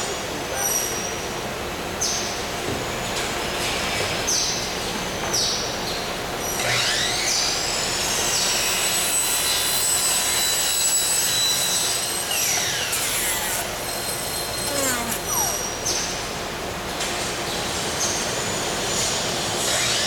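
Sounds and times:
power tool whining: 0:11.0 - 0:16.2.

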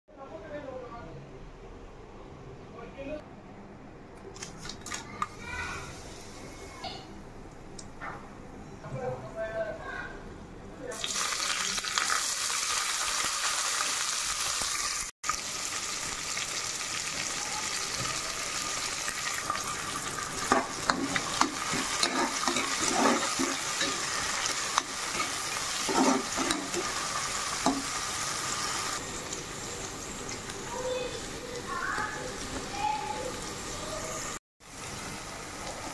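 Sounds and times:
onions sizzling in hot oil: 0:10.9 - 0:35.9
ladle scraping a pot: 0:20.5 - 0:24.1, 0:25.2 - 0:26.9.

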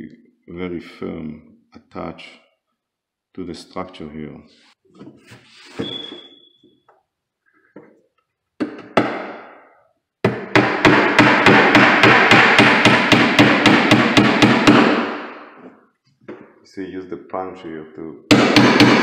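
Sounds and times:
hammer driving nails into wood: 0:08.6 - 0:09.6, 0:10.2 - 0:15.8, 0:18.3 - 0:19.0.

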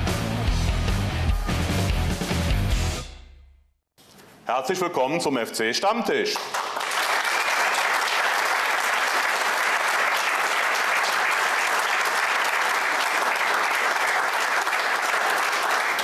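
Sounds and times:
audience applauding: 0:06.3 - 0:16.0.

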